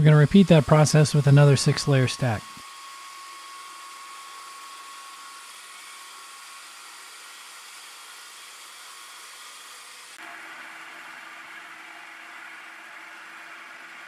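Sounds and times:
belt grinder grinding steel: 0.0 - 10.2.

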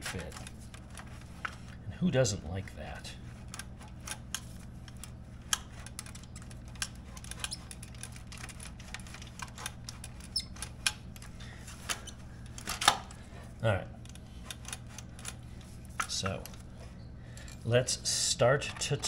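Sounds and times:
steady low hum: 0.0 - 19.0
small metallic clicks and scrapes: 3.3 - 13.2.

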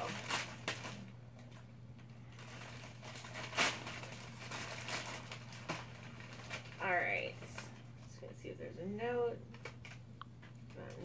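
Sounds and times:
plastic bag crinkling: 0.0 - 8.0
sharp plastic crackle: 0.0 - 8.1, 9.4 - 11.0.

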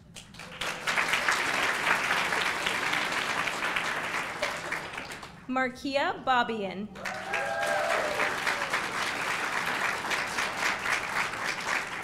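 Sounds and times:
audience applauding: 0.0 - 5.4, 7.0 - 12.0
people cheering: 7.0 - 12.0.

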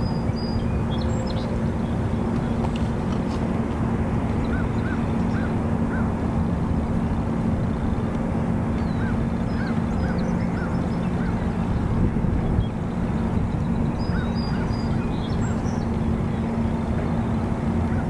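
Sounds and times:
constant low hum: 0.0 - 18.0
steady rushing background: 0.0 - 18.0
bird calling: 13.7 - 16.5.

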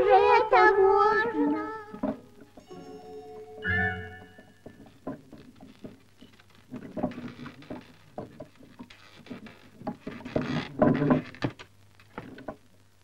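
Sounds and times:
irregular clicking and clattering: 4.6 - 12.9.

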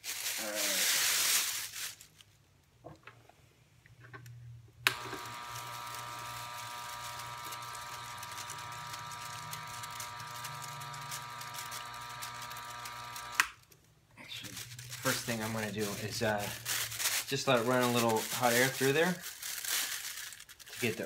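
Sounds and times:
air pump humming: 4.9 - 13.5.

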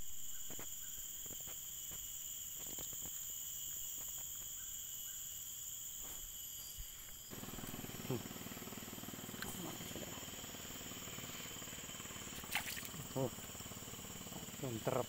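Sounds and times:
high-pitched insect chorus: 0.0 - 15.0.

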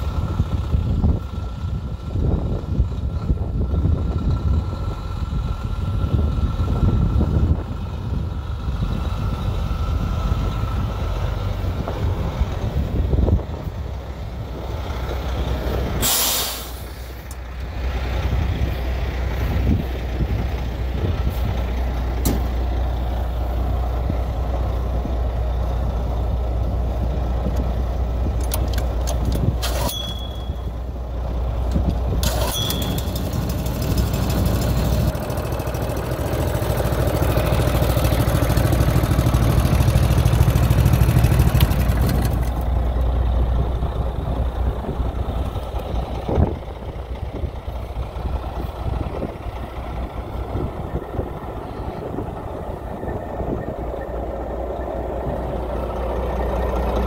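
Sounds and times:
truck diesel engine idling: 0.0 - 57.0
loud hiss: 16.0 - 17.1.

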